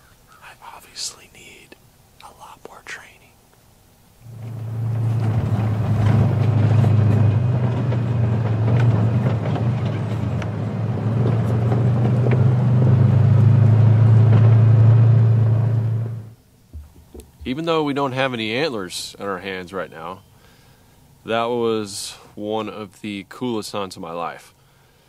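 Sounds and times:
tyres on gravel: 4.2s - 13.1s
vehicle engine droning: 4.2s - 16.4s.

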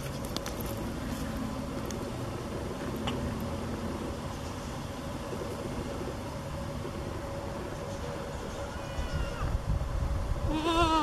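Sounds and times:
wind rumble on microphone: 9.0s - 11.0s.

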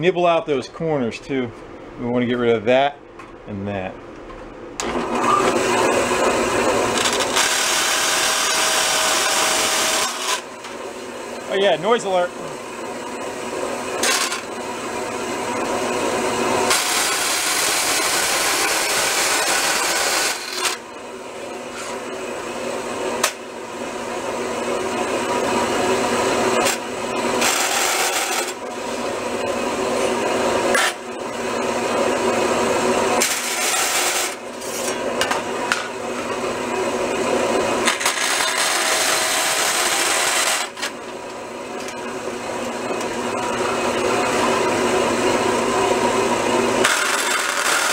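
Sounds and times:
bandsaw cutting sheet steel: 5.1s - 10.5s, 13.7s - 20.9s, 25.4s - 31.2s, 33.0s - 35.0s, 37.7s - 41.0s, 46.1s - 47.9s.

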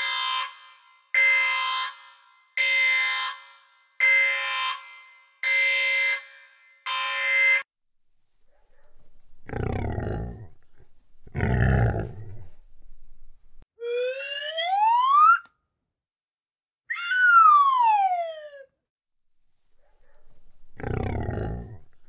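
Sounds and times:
toy dinosaur roaring: 9.5s - 10.5s, 20.8s - 21.8s.

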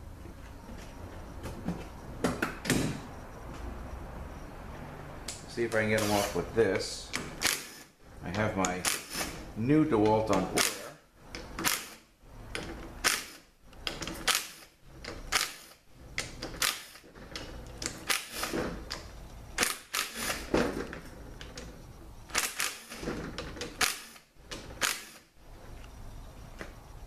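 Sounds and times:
cordless driver bursts: 5.8s - 6.4s, 7.2s - 7.9s, 18.0s - 18.6s, 19.6s - 20.5s, 22.3s - 23.1s, 23.7s - 25.3s.

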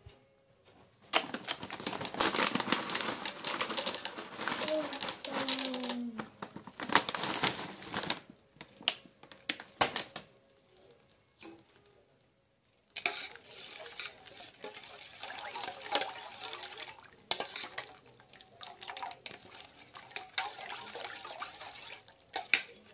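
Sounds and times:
cereal poured from plastic pouch: 1.2s - 10.4s
spoon stirring in metal bowl: 12.9s - 22.9s.

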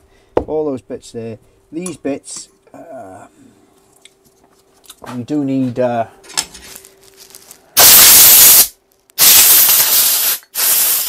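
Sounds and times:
pressurised air jet hissing: 7.8s - 11.0s.

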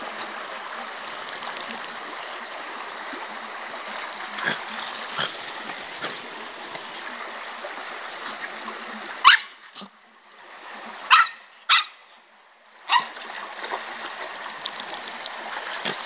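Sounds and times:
stream rushing over stones: 0.0s - 16.0s
dog splashing through water: 4.3s - 7.0s, 13.1s - 16.0s
dog barking: 9.2s - 9.6s, 11.1s - 12.0s.

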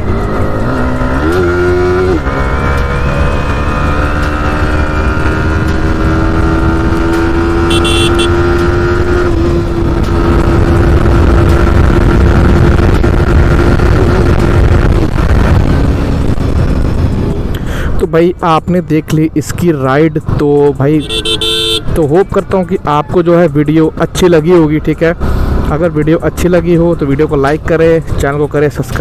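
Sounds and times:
motorcycle engine accelerating: 0.0s - 17.5s
wind rushing over microphone: 9.2s - 17.6s.

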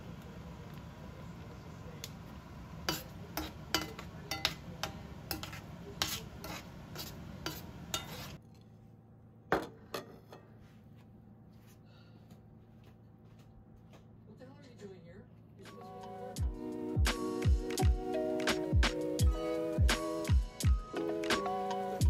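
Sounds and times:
steady low hum: 0.0s - 21.2s
spoon clinking against pan: 2.9s - 5.6s
utensil clinking on dish: 2.9s - 5.6s.

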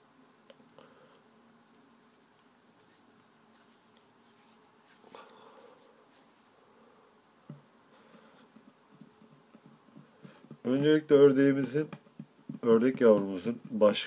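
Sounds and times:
hands kneading play dough: 7.5s - 13.9s.

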